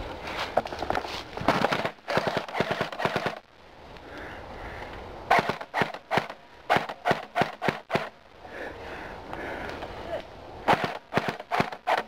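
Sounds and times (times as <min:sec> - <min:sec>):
airsoft gun firing: 0:01.5 - 0:03.4, 0:05.3 - 0:08.2, 0:10.6 - 0:12.0.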